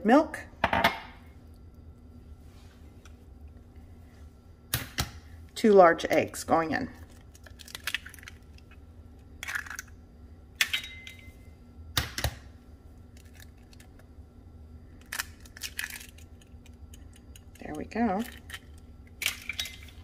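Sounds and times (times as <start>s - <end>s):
eggshells cracking: 7.0s - 10.0s, 13.1s - 14.1s, 14.9s - 20.0s.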